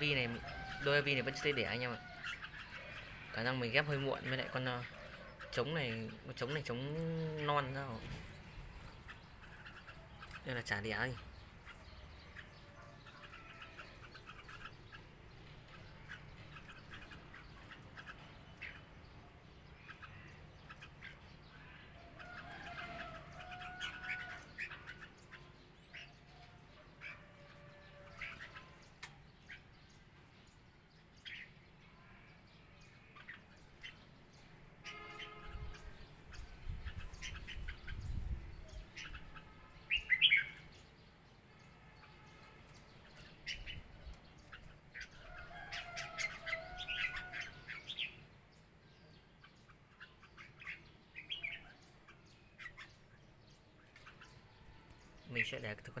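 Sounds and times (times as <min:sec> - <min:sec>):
birds chirping: 0:00.0 - 0:56.0.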